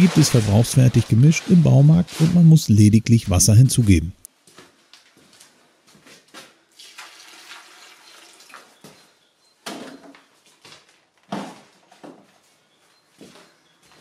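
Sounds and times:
water pouring into a bucket: 0.0 - 2.1, 6.8 - 8.8.

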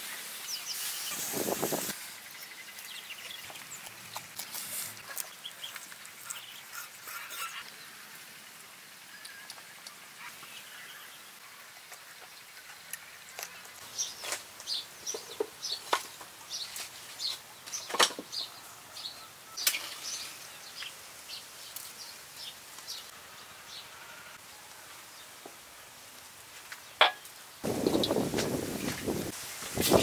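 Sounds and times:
birds chirping: 27.0 - 29.3.

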